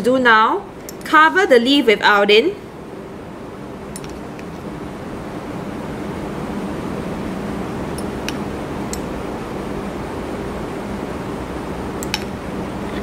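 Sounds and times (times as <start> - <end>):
room hum with hiss: 0.0 - 13.0.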